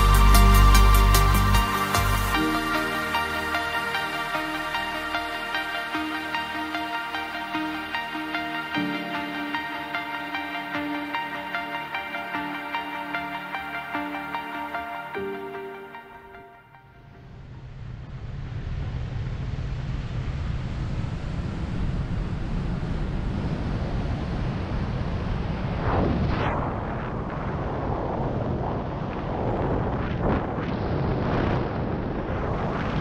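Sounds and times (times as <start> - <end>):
wind rushing past microphone: 17.4 - 33.0.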